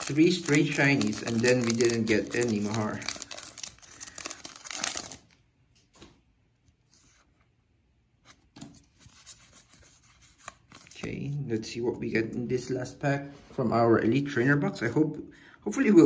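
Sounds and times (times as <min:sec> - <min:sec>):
foil wrapper crinkling and tearing: 0:00.0 - 0:05.4
cards clicking and rustling: 0:00.0 - 0:06.1.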